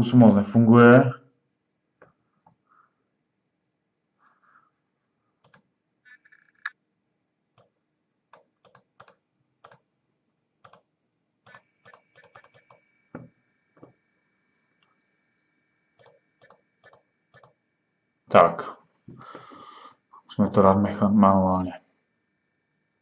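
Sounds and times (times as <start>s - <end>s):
faint high whine: 11.5s - 23.0s.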